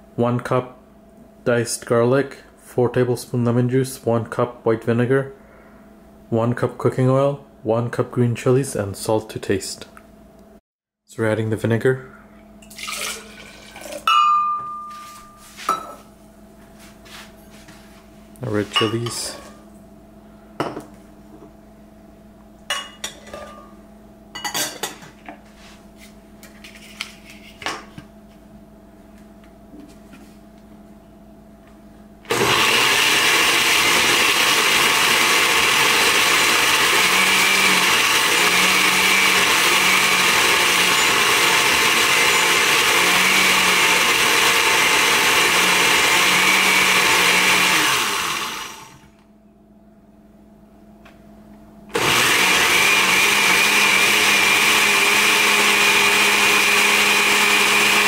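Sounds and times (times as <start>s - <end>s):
electric blender running: 32.3s - 49.2s, 51.9s - 58.0s.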